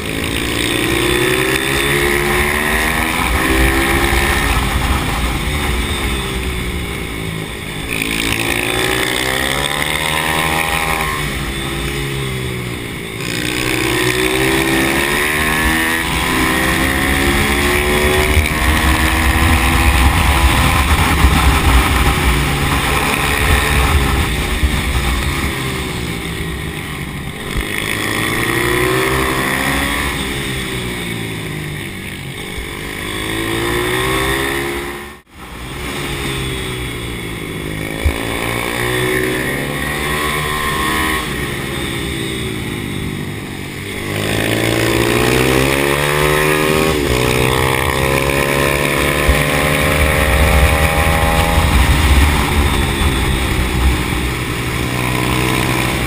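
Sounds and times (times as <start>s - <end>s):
pit bike engine revving: 0.0s - 56.0s.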